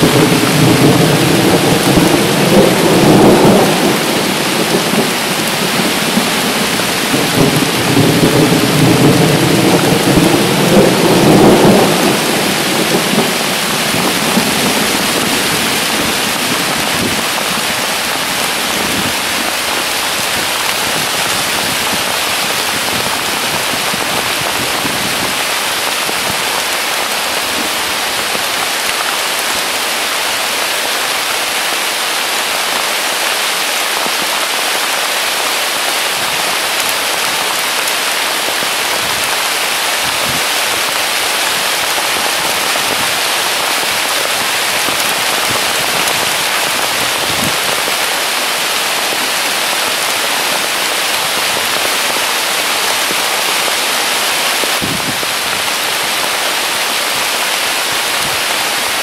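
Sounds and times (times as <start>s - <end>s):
thunder rumbling: 0.0s - 26.7s
heavy rain hissing: 0.0s - 59.0s.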